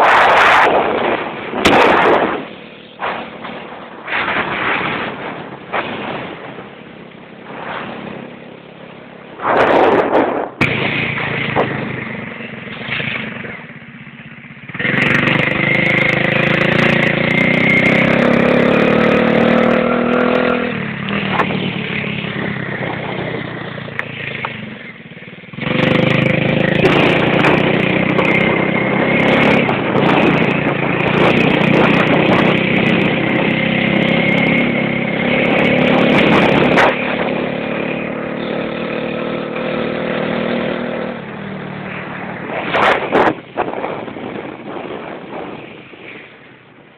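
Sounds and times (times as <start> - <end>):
motorcycle engine running: 0.0 - 46.9.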